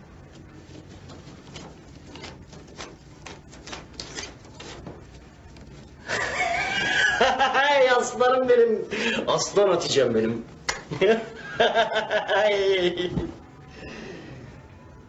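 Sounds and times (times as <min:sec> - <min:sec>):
banknotes rustling: 0:00.0 - 0:12.3
man laughing: 0:06.1 - 0:08.2, 0:10.9 - 0:13.3.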